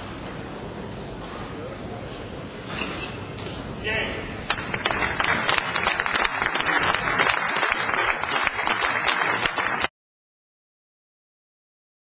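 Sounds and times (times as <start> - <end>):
crowd applauding: 4.5 - 9.9.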